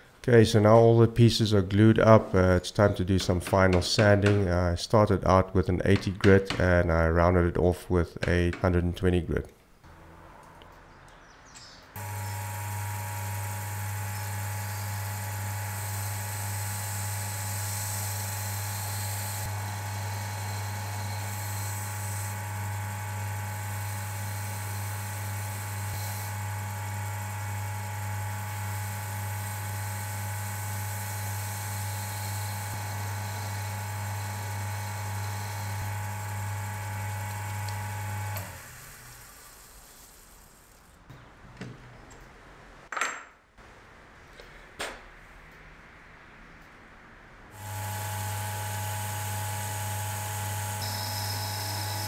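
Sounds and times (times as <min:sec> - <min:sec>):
lathe motor humming: 0:12.0 - 0:40.2, 0:47.6 - 0:52.0.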